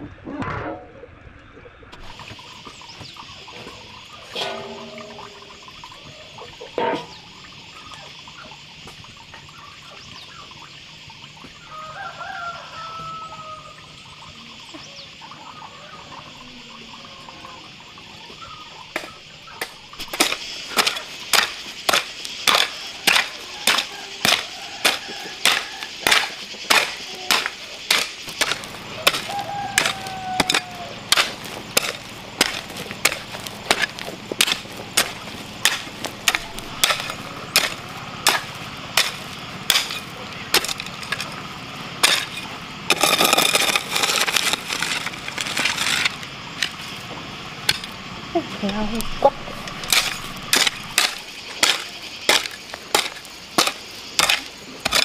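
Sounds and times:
hoe striking stony soil: 3.8s - 6.0s, 19.0s - 47.0s, 47.6s - 48.0s, 48.6s - 55.0s.

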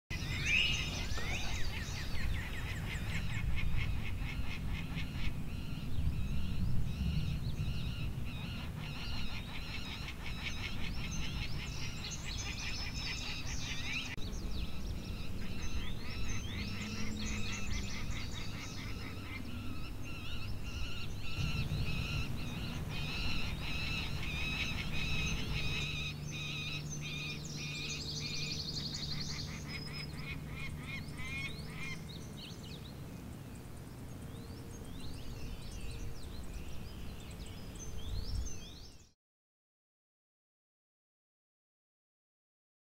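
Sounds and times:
small animals chirping and trilling: 0.1s - 32.6s
low steady hum: 0.1s - 39.0s.

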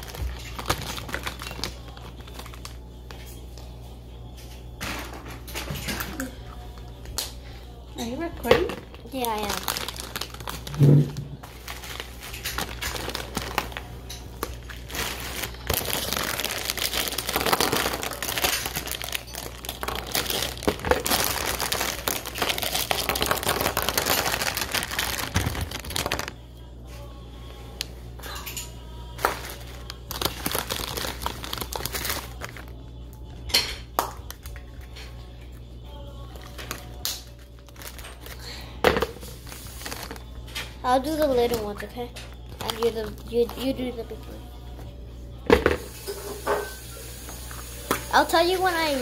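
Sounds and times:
plastic bag crinkling: 0.0s - 3.2s, 8.8s - 26.4s, 29.2s - 32.7s, 37.6s - 38.6s, 39.2s - 41.8s, 42.4s - 44.1s.

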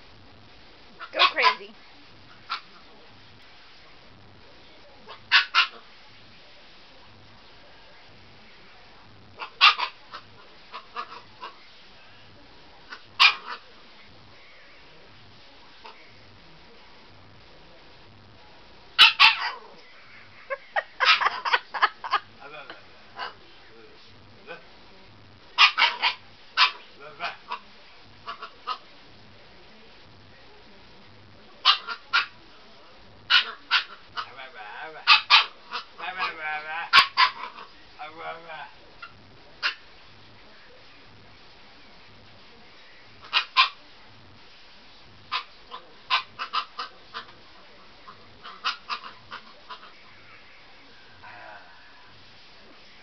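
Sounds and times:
puppy yapping: 19.0s - 19.6s, 25.6s - 27.6s.

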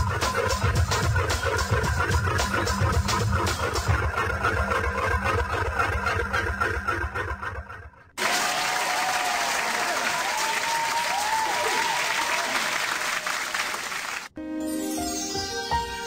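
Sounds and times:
music: 0.0s - 5.3s, 14.4s - 16.0s
audience applause and cheering: 8.2s - 14.4s.

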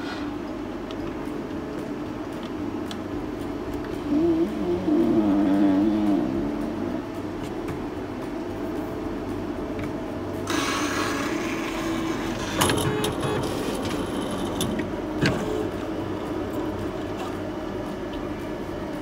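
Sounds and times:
machine motor hum: 3.7s - 19.0s
machine hiss: 10.4s - 13.7s.

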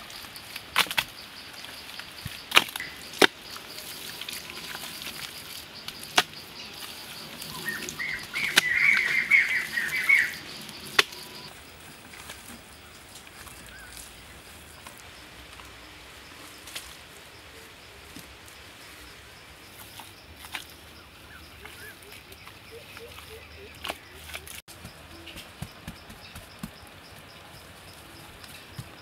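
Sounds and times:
outdoor background: 0.0s - 29.0s
bird chattering: 2.8s - 4.0s, 5.7s - 11.5s.

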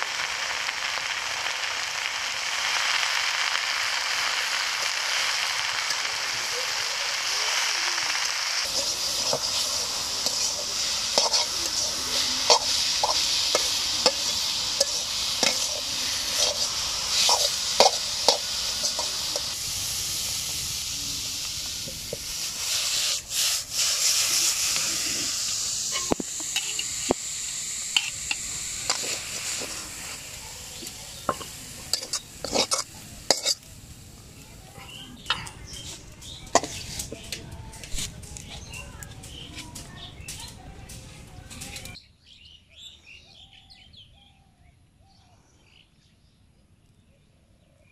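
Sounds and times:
greens sizzling in a wok: 0.0s - 42.0s
metal spatula scraping wok: 8.3s - 33.7s, 35.3s - 37.3s.

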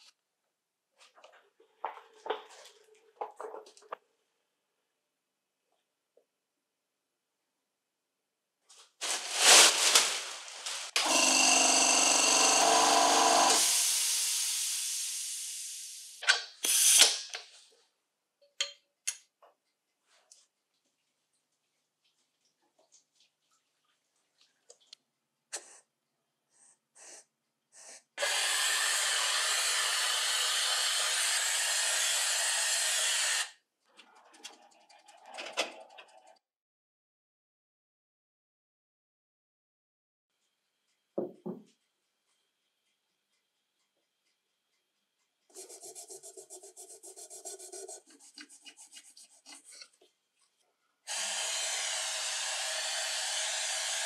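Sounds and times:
spray gun air hiss: 13.6s - 17.1s.

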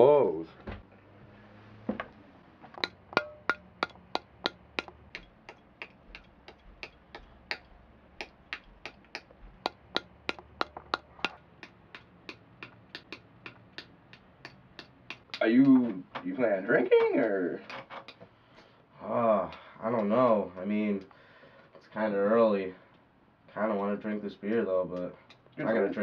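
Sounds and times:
sharp wooden taps: 2.8s - 16.3s, 17.1s - 18.3s.

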